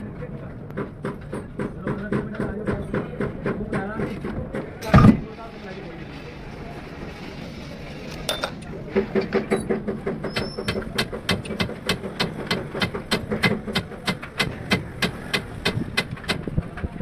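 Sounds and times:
rapid tapping: 0:09.7 - 0:16.4.

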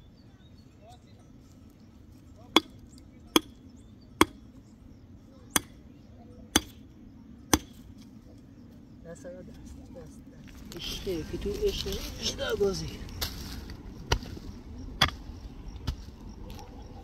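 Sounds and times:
mattock striking stony earth: 0:13.1 - 0:16.6.

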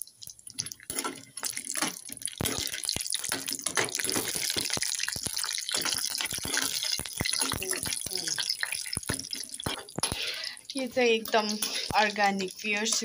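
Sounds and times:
meat sizzling in hot oil: 0:00.0 - 0:13.0
metal ladle scraping a pan: 0:11.1 - 0:13.0.

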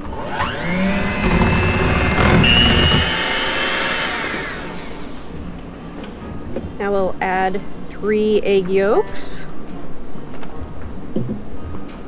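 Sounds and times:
electric hand mixer beating: 0:00.0 - 0:05.2.

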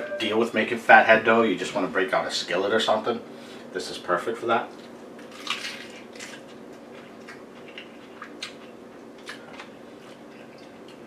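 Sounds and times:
faint steady hum: 0:00.0 - 0:11.0
person chewing crisp lettuce: 0:04.7 - 0:11.0.

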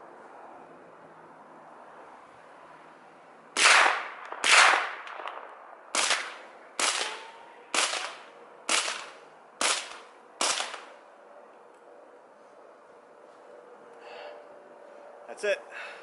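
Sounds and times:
suppressed gunshots: 0:03.6 - 0:07.2.

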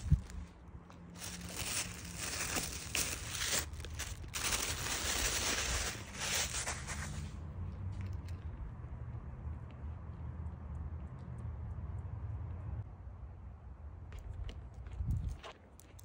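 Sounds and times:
tissue paper crinkling and rustling: 0:01.2 - 0:07.2.

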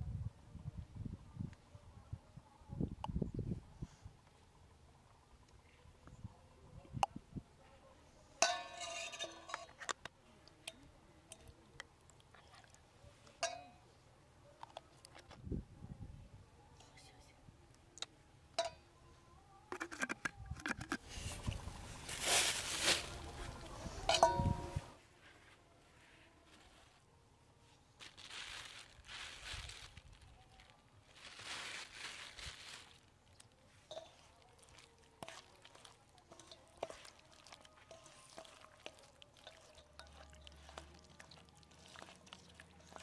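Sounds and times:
metal spoon scraping steel bowl: 0:08.4 - 0:10.0, 0:36.3 - 0:43.0
faint wet squelching: 0:31.3 - 0:43.0.

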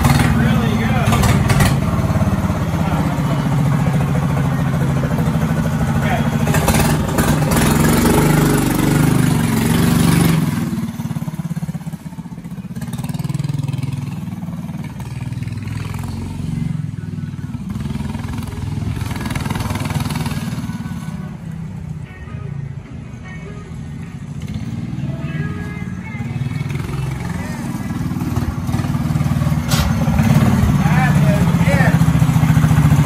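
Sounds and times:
go-kart engine running: 0:00.0 - 0:33.0.

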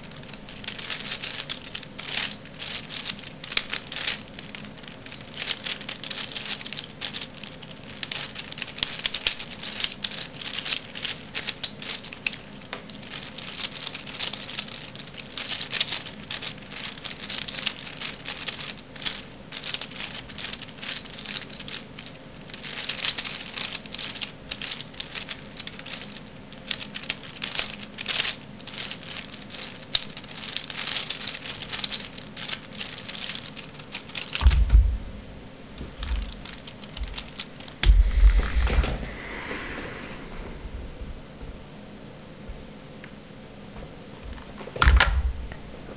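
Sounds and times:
puzzle cube clicking and scraping: 0:00.0 - 0:35.2, 0:35.8 - 0:40.5
loud thump: 0:34.4 - 0:36.2, 0:37.8 - 0:39.2.

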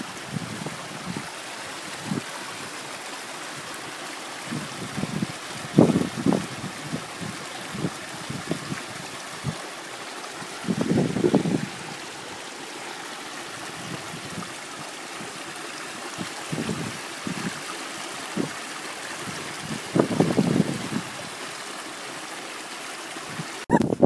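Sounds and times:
stream trickling over stones: 0:00.0 - 0:23.7.

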